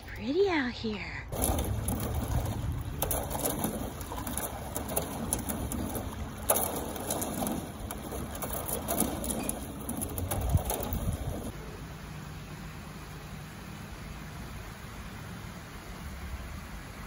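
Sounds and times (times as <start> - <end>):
water rushing over weir: 1.3 - 11.6.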